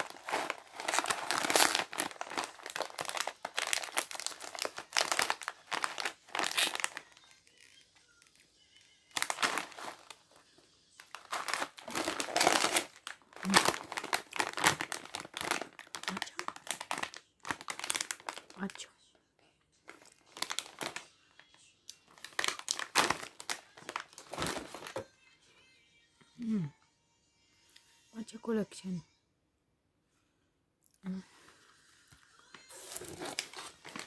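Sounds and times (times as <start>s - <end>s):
plastic snack bags crinkling: 0.0s - 10.4s, 11.0s - 18.9s, 19.8s - 25.0s, 32.7s - 34.0s.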